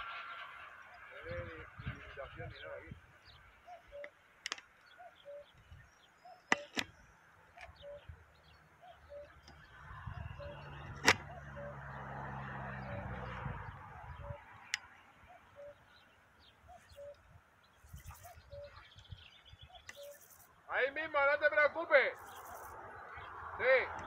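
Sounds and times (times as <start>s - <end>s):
bird low call: 0.0s - 20.8s
sharp clicks: 3.9s - 5.8s, 6.4s - 7.9s, 10.8s - 11.4s
low hum and rushing noise: 9.3s - 14.9s.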